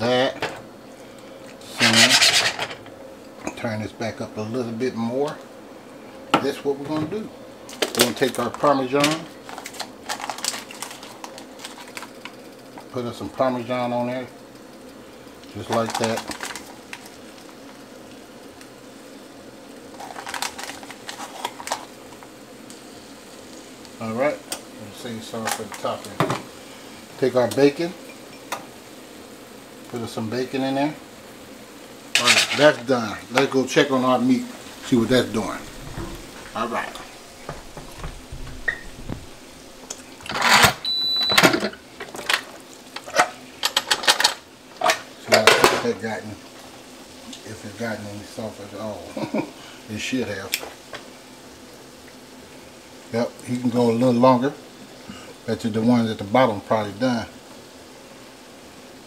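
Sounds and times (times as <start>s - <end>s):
asparagus sizzling in frying pan: 0.0s - 3.3s, 5.3s - 59.0s
metal lid scraping and clattering: 1.8s - 2.9s, 32.2s - 32.8s.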